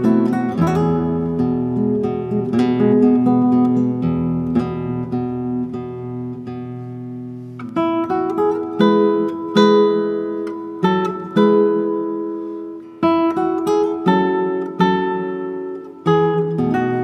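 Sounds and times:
acoustic guitar plucking: 0.0s - 17.0s.

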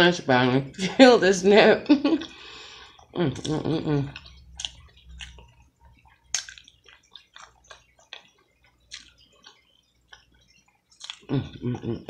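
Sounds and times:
wet chewing and lip smacking: 2.8s - 12.0s.

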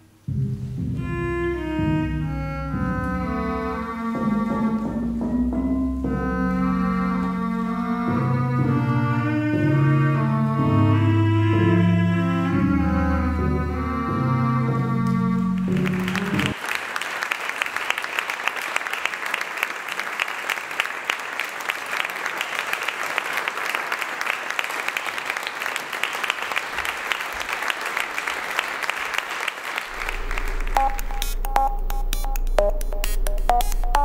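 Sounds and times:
held music notes: 0.0s - 16.6s, 29.9s - 34.0s
audience applauding: 15.4s - 32.6s
low hum: 29.9s - 34.0s.

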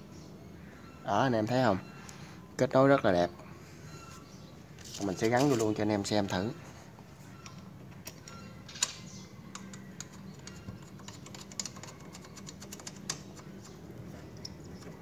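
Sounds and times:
plastic connectors clicking: 7.4s - 13.5s.

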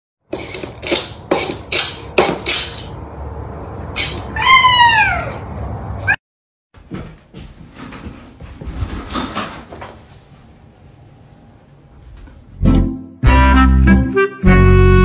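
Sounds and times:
cat meowing: 4.2s - 6.2s.

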